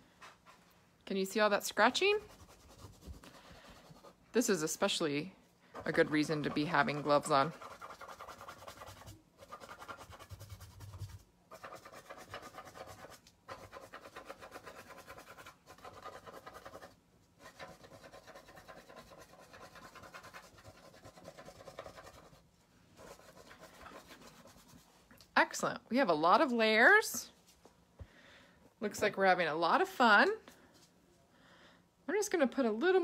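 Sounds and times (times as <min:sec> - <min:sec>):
fingertips scratching paint on canvas: 0:02.1 - 0:04.2, 0:05.7 - 0:22.4, 0:23.0 - 0:24.9.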